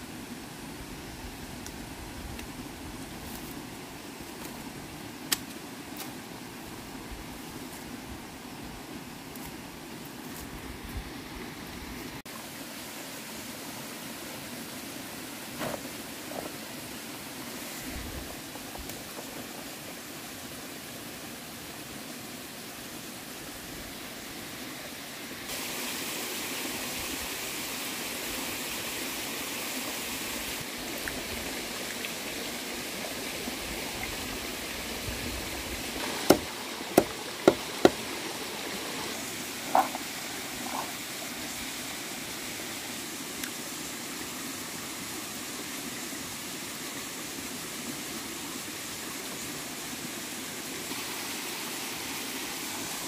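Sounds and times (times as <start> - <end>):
forest stream rushing: 0.0 - 53.0
machete chopping into wood: 36.0 - 37.6.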